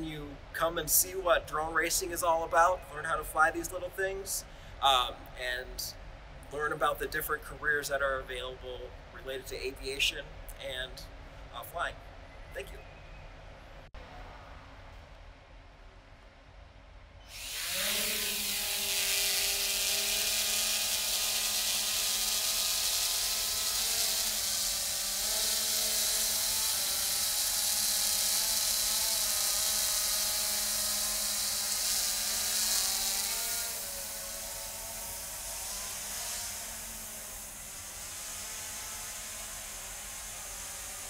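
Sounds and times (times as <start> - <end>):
drone propellers buzzing: 17.3 - 41.0.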